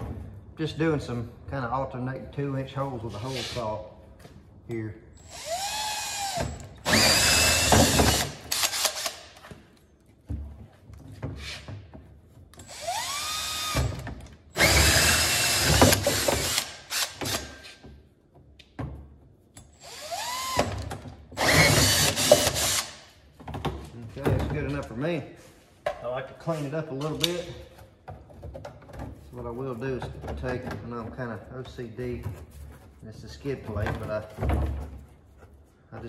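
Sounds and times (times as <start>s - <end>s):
drill motor whining: 5.2s - 9.1s, 12.6s - 13.8s, 14.6s - 17.4s.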